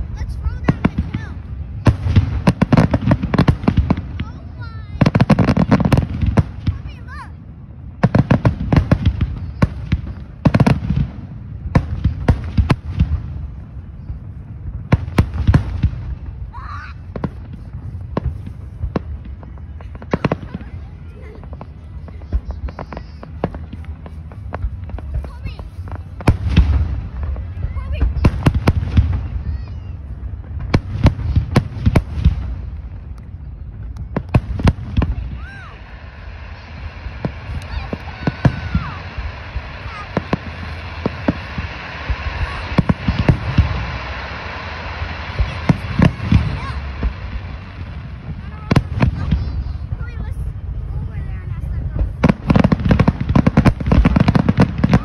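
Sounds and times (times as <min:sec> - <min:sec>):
continuous low rumble: 0:00.0 - 0:55.0
fireworks bursting with sharp bangs: 0:00.0 - 0:55.0
firework shells bursting: 0:33.9 - 0:49.9.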